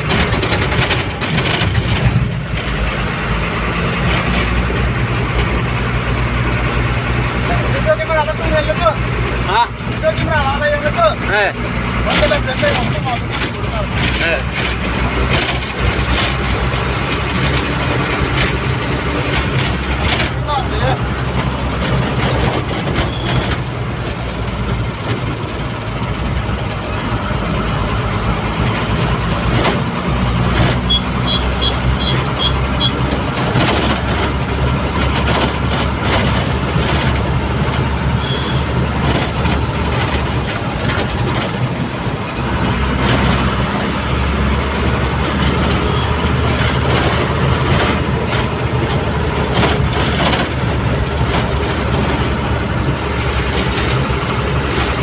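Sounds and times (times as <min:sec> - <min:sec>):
small knocks and rattles: 0:00.0 - 0:03.1, 0:08.0 - 0:27.1, 0:28.5 - 0:30.9, 0:32.2 - 0:43.9, 0:45.2 - 0:55.0
road noise: 0:00.0 - 0:55.0
vehicle engine drone: 0:00.0 - 0:55.0.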